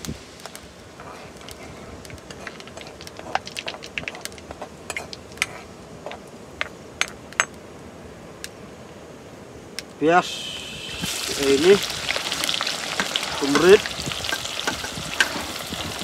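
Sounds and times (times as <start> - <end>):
frying oil sizzling: 10.2 - 16.0
ladle tapping a pan: 13.0 - 15.4.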